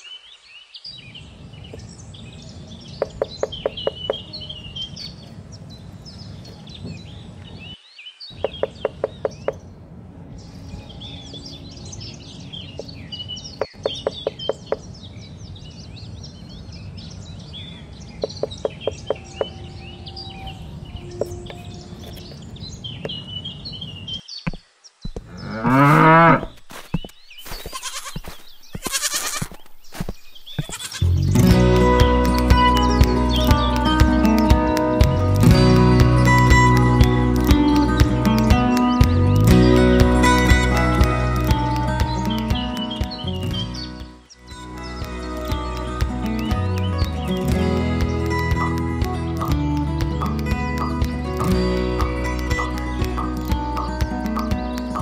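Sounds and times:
birds chirping: 0.0s - 55.0s
loud rising animal call: 25.3s - 26.5s.

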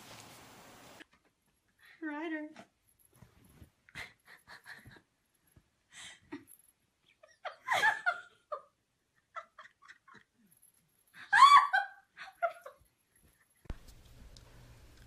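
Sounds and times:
person laughing: 11.2s - 12.8s.

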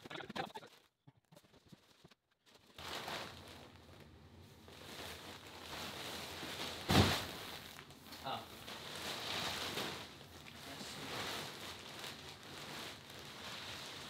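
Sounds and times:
plastic wrap rustling: 1.4s - 14.0s
mattress thud: 6.8s - 7.5s.

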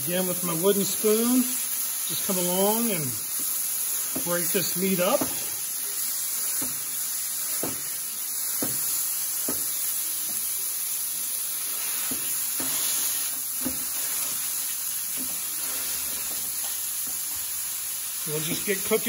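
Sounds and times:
meat sizzling on a griddle: 0.0s - 19.0s
wooden spoon scraping griddle: 11.6s - 17.5s.

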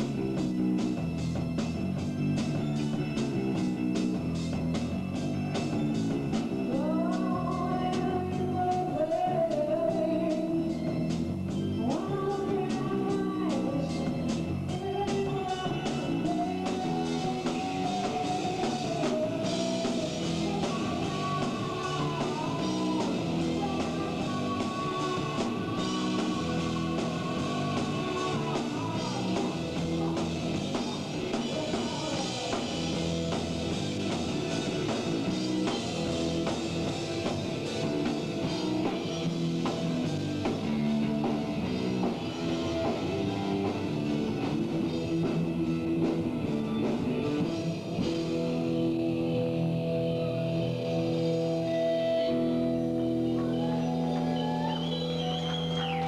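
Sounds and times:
rock band playing live: 0.0s - 56.0s
bending guitar notes: 32.4s - 56.0s.

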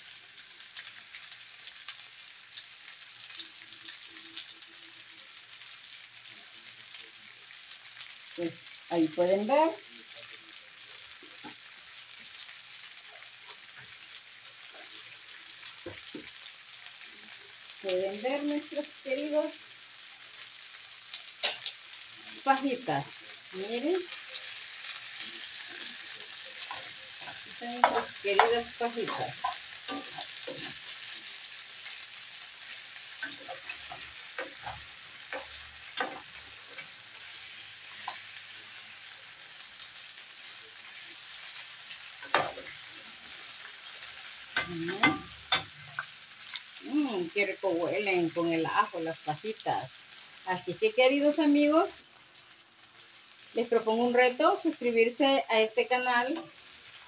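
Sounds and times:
meat sizzling in a skillet: 0.0s - 57.0s
metal spoon scraping a pan: 21.4s - 21.8s, 24.0s - 32.0s, 32.6s - 39.1s, 41.4s - 46.7s.

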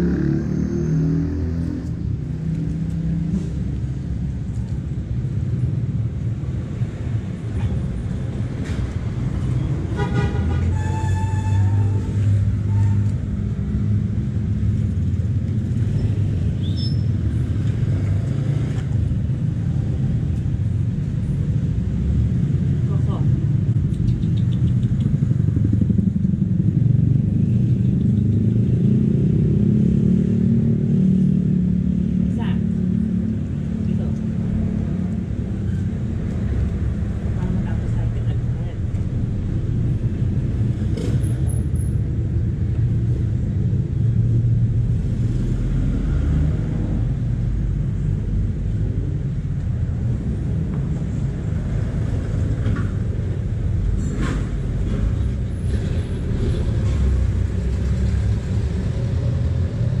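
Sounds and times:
motorcycle engine running: 24.3s - 28.5s
low outdoor rumble: 31.2s - 60.0s.

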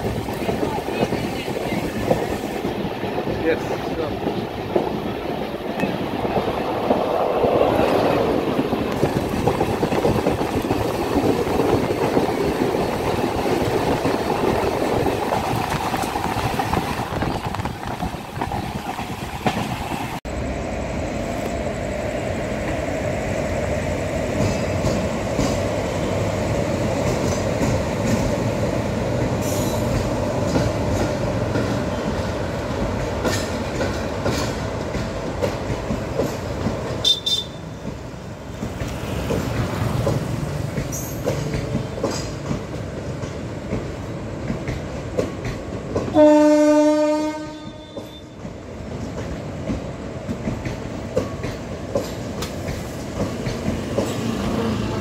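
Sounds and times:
wheels clacking on rail joints: 0.0s - 20.2s, 24.2s - 55.0s
train rumbling: 0.0s - 55.0s
locomotive horn: 37.0s - 37.7s, 46.1s - 48.4s.

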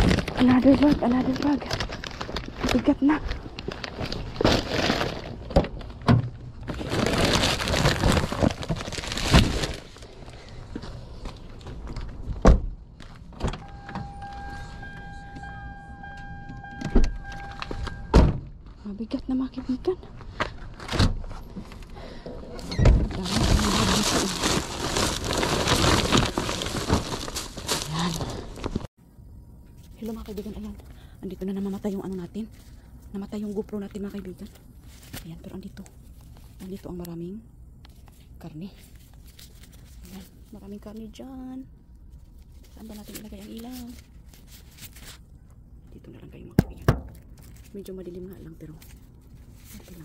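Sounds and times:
plastic bags crinkling: 0.0s - 10.8s, 23.1s - 28.9s, 37.9s - 41.2s, 42.0s - 45.4s, 47.0s - 50.0s.

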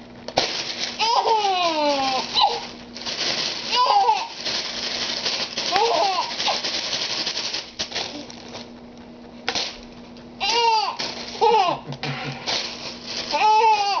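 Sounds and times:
plastic bag rustling: 0.4s - 8.8s, 9.5s - 14.0s
infant laughing: 1.0s - 2.6s, 10.4s - 12.5s.

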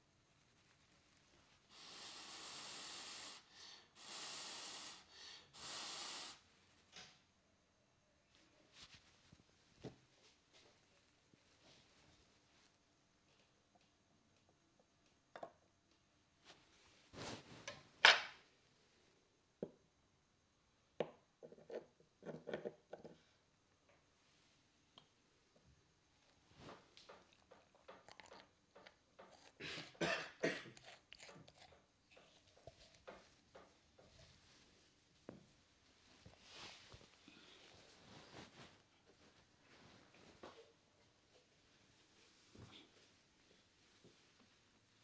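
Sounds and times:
short hissing burst: 1.7s - 6.4s.

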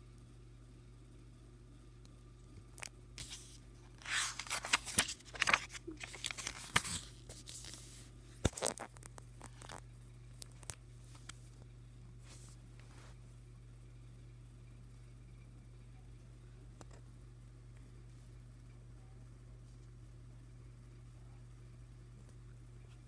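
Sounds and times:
paper pages turning: 2.8s - 9.8s, 10.4s - 11.4s.

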